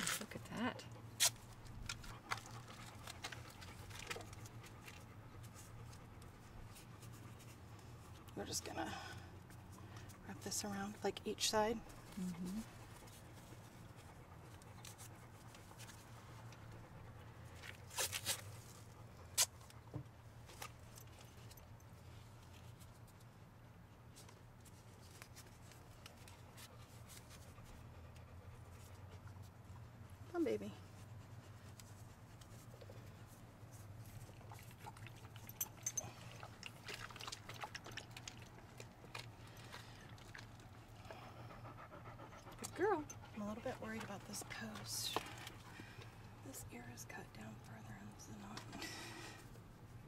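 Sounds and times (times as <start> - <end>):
tape rustling: 17.6 - 19.8
dog lapping water: 34.2 - 41.0.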